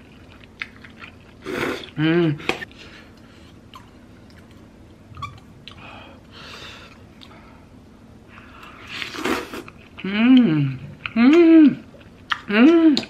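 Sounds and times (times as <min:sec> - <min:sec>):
person slurping noodles: 0:08.9 - 0:09.7.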